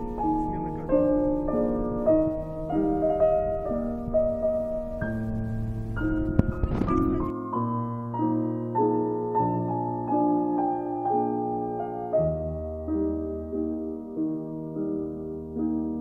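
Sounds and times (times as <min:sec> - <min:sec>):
slow piano melody: 0:00.0 - 0:16.0.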